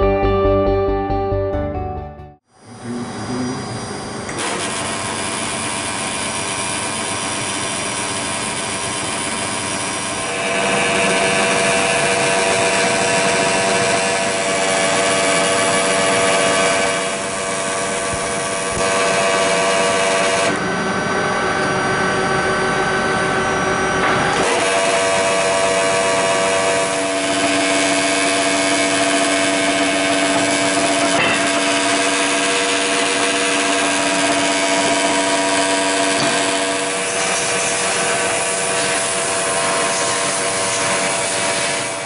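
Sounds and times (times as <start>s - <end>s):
pillar drill motor hum and whine: 2.5s - 42.0s.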